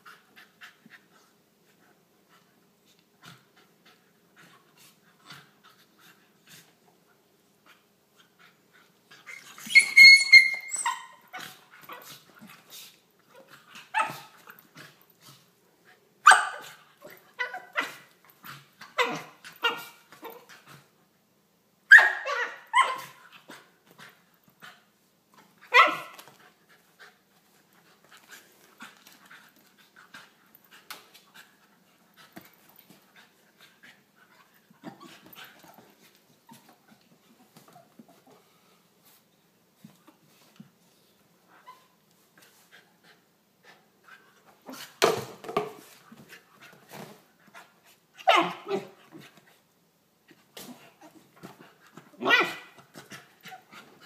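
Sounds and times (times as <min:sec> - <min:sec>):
puppy yipping and barking: 0:09.3 - 0:11.3, 0:16.2 - 0:16.8, 0:21.9 - 0:23.2, 0:25.7 - 0:26.1, 0:48.2 - 0:48.9, 0:52.2 - 0:52.7
faint rustling and scuffling: 0:25.2 - 0:43.0.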